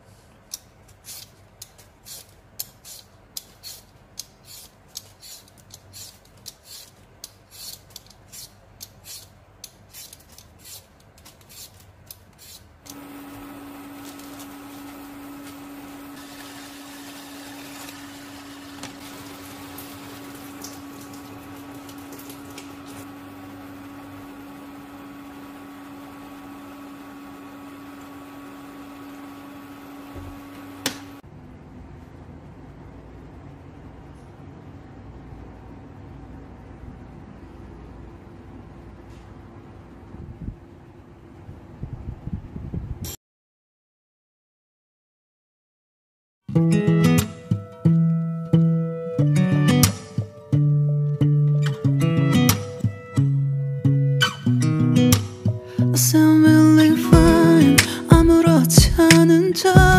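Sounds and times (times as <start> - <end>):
induction cooktop humming: 0.0 - 41.6
vegetable peeler scraping potato: 0.9 - 12.7.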